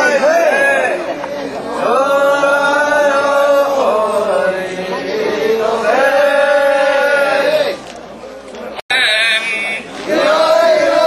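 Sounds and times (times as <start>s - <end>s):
men chanting together: 10.1s - 11.0s.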